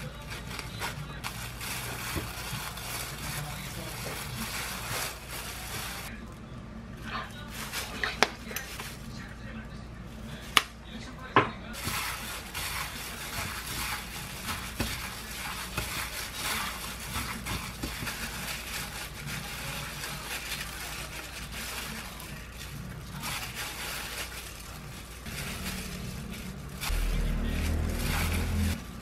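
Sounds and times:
plastic gloves crinkling: 0.0 - 6.4, 7.0 - 10.7, 11.7 - 29.0
low hum: 24.9 - 29.0.

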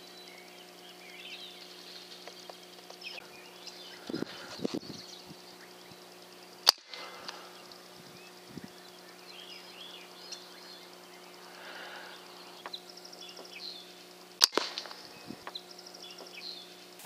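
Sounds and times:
birds chirping faintly: 0.0 - 17.0
steady low hum: 0.0 - 17.0
small clicks: 1.5 - 3.2, 6.6 - 7.8, 14.4 - 15.6
air rifle shot: 6.6 - 7.3, 14.4 - 15.2.

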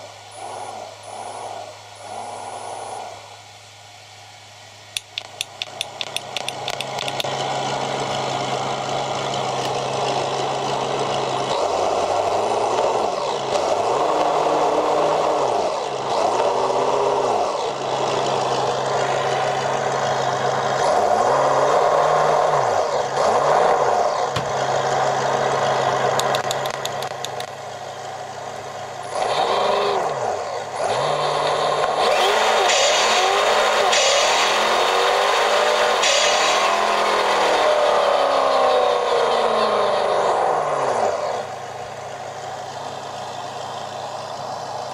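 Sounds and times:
wheels spinning: 5.0 - 44.9
simulated engine revving from speaker: 7.7 - 26.3, 29.0 - 41.6.

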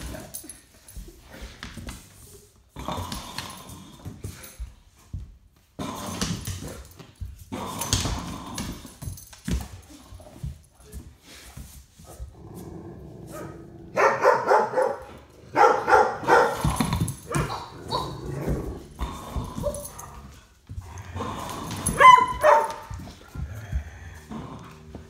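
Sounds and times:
dog barking: 13.4 - 16.6, 22.0 - 22.9
dog yelping: 22.0 - 22.9.

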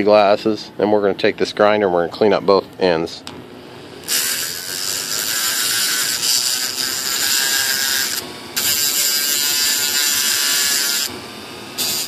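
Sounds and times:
rotary tool grinding metal: 4.0 - 11.2, 11.8 - 12.0.

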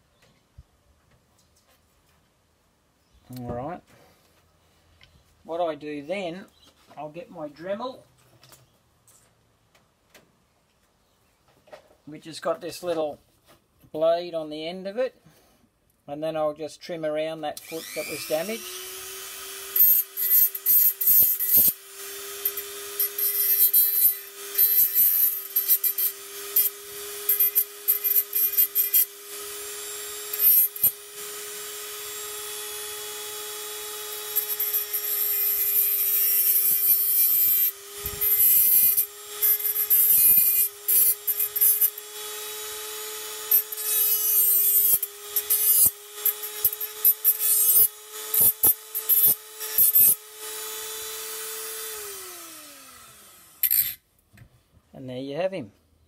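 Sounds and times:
cut-off wheel grinding metal: 17.6 - 54.0
rotary tool whine: 17.6 - 54.0.

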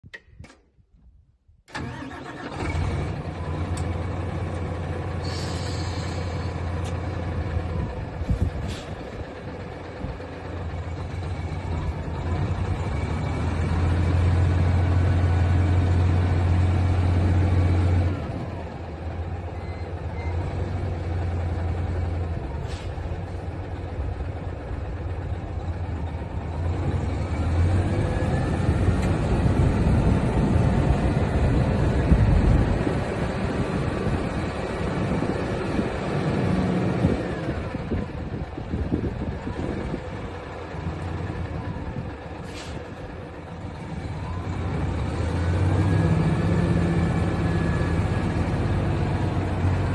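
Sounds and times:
diesel truck engine running: 1.7 - 49.9
short hiss of air: 5.2 - 6.5, 42.4 - 42.9.

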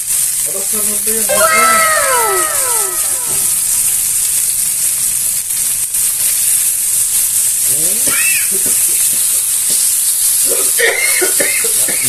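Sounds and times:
meat sizzling in a skillet: 0.0 - 12.0.

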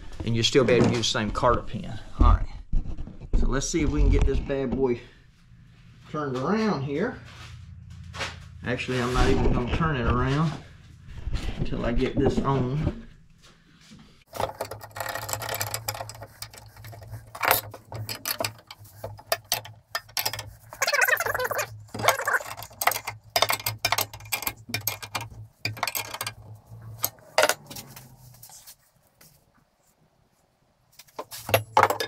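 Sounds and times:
steady low hum: 4.9 - 14.8
wrench clicking and clinking on metal: 14.3 - 28.0.

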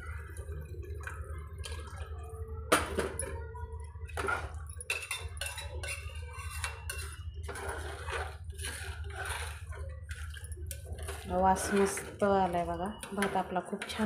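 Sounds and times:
metal spoon scraping a pot: 4.2 - 14.0.

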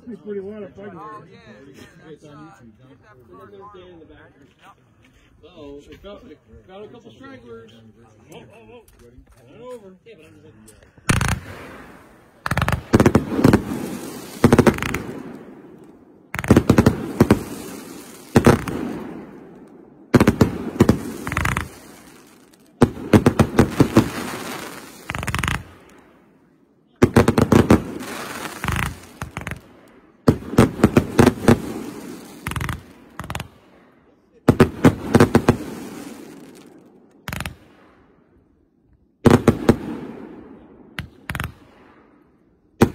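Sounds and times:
fireworks bangs: 11.0 - 26.3, 27.0 - 38.2, 39.2 - 42.2.

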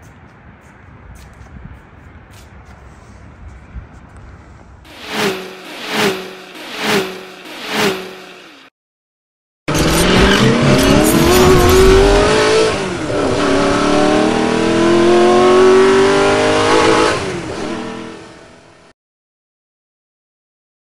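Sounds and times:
car engine accelerating hard: 4.9 - 8.6, 9.7 - 18.6.

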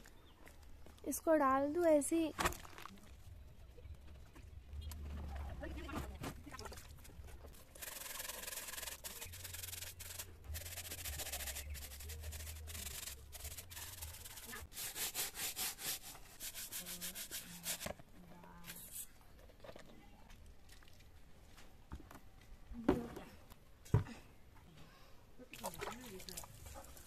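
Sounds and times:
plastic brush scrubbing a sneaker: 7.6 - 18.0.

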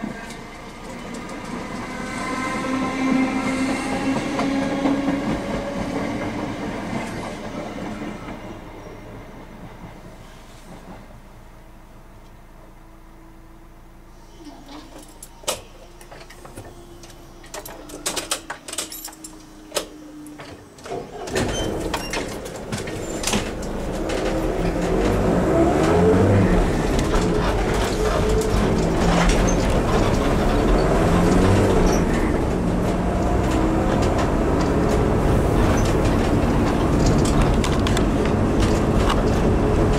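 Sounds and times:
road noise inside car: 15.3 - 39.9
car engine accelerating: 23.3 - 39.9.

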